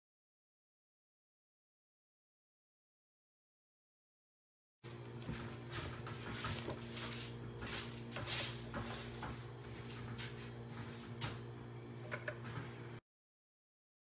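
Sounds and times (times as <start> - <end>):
steady low hum: 4.8 - 13.0
spatula scraping food processor bowl: 4.9 - 11.4.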